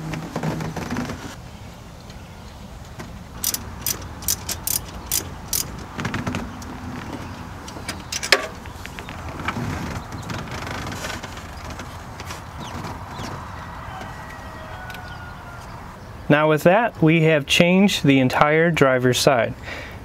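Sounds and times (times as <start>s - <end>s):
rustling and scraping on plastic: 0.0s - 1.4s, 3.8s - 14.1s
sharp clicks: 3.4s - 5.9s.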